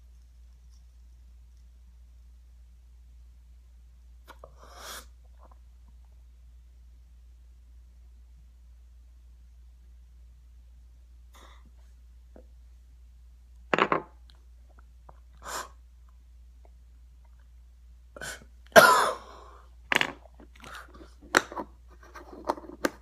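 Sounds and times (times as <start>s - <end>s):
man coughing: 18.8s - 19.4s.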